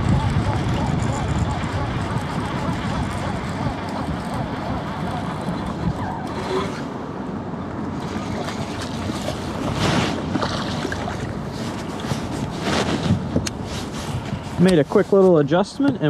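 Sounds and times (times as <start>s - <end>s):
wind buffeting microphone: 0.0s - 15.0s
water slapping against boat: 7.8s - 14.8s
fish thrashing splash: 8.0s - 12.1s.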